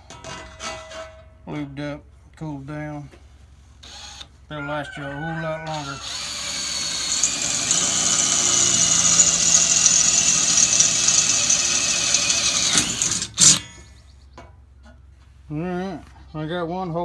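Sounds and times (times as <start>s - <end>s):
drill boring into steel: 5.7s - 13.6s.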